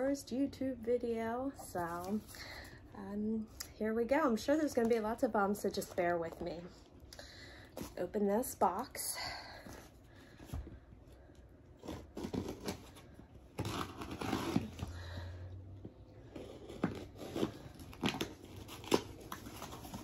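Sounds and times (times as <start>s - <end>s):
tape and cardboard tearing: 11.8s - 15.0s, 16.3s - 20.0s.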